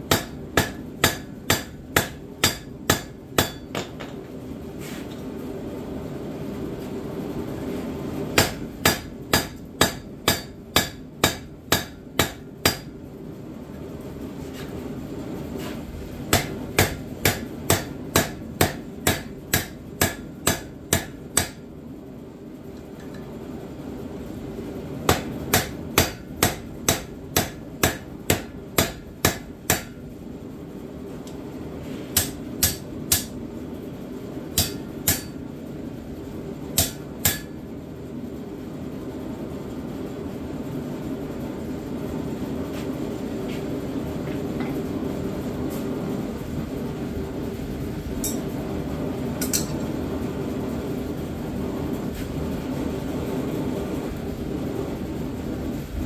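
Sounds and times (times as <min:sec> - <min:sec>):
hammer striking steel on anvil: 0:00.1 - 0:04.2, 0:08.4 - 0:12.9, 0:16.3 - 0:21.6, 0:25.1 - 0:30.0, 0:32.1 - 0:33.4, 0:34.6 - 0:35.4, 0:36.8 - 0:37.6, 0:48.2 - 0:48.5, 0:49.4 - 0:49.9.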